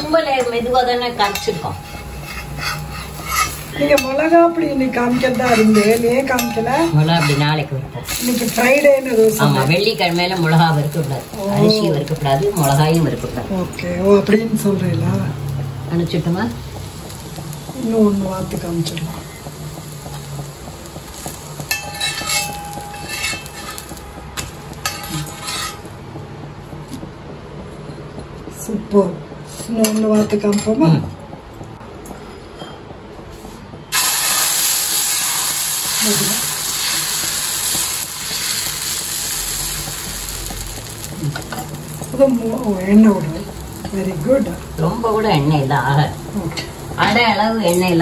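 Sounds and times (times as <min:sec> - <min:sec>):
batter sizzling on griddle: 0:00.0 - 0:26.2, 0:33.3 - 0:48.0
metal spatula scraping iron griddle: 0:01.2 - 0:10.5, 0:21.7 - 0:25.9.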